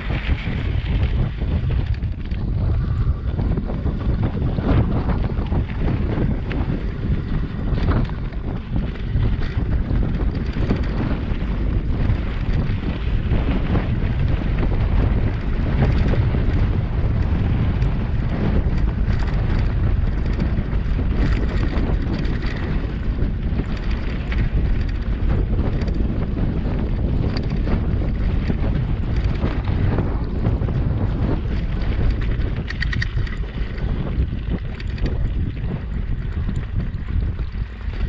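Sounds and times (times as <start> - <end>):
bike clicking and rattling: 0.0 - 38.0
wind buffeting microphone: 0.0 - 38.0.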